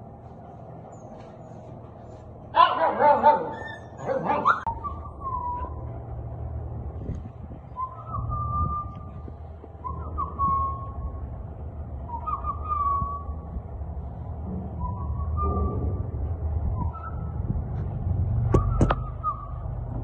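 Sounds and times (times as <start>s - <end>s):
puppy crying: 2.6s - 4.8s
puppy whining: 3.2s - 5.8s.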